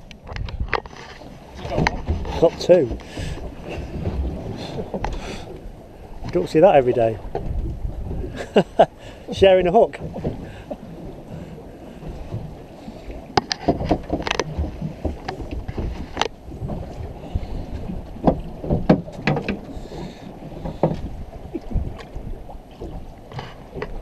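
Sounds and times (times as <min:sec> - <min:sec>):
knocks and clicks of fishing tackle: 0:00.0 - 0:03.4, 0:13.4 - 0:16.4, 0:18.2 - 0:19.7, 0:20.6 - 0:21.1, 0:23.3 - 0:24.0
low rumble of wind and water: 0:00.0 - 0:24.0.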